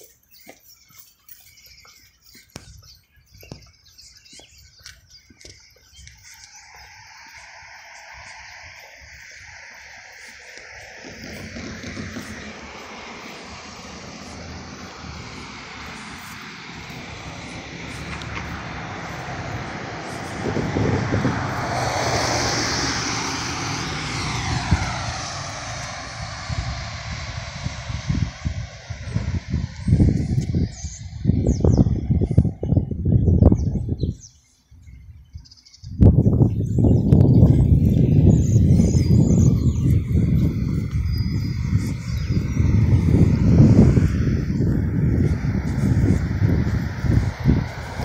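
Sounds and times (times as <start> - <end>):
footsteps on concrete: 0.0 - 7.8, 9.2 - 21.2
small birds chirping: 0.0 - 48.0
passing vehicle rushing: 6.2 - 33.9, 36.0 - 48.0.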